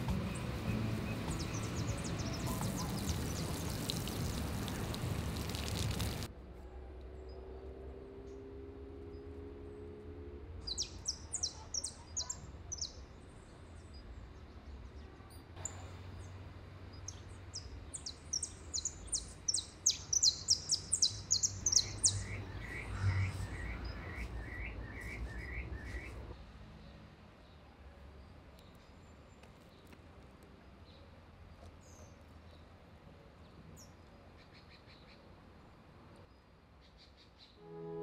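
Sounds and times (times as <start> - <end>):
bird chirping: 0.0 - 6.2, 10.6 - 15.0, 15.6 - 27.0
lower-pitched bird notes: 0.0 - 6.2, 18.0 - 26.3.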